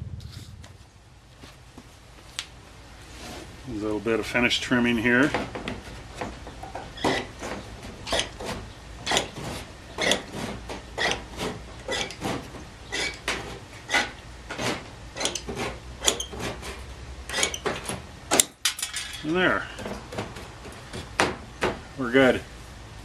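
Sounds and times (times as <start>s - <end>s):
metal shears snipping aluminum: 6.6s - 19.4s.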